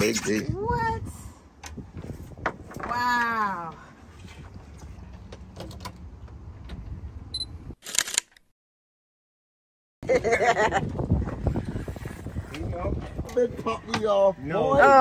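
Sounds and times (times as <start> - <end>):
camera shutter click: 7.8 - 8.4.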